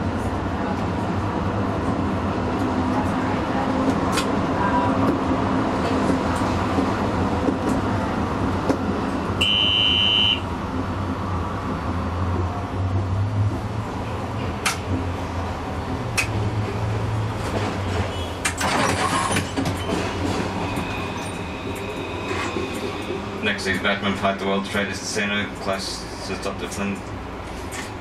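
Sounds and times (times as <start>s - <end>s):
tram motor hum: 0.0s - 28.0s
short high beep: 9.4s - 10.4s
wheel-on-rail noise: 10.8s - 24.0s.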